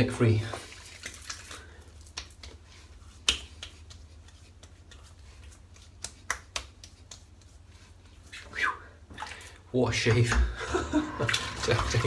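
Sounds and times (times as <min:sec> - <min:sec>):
hands slapping face: 0:02.0 - 0:07.7.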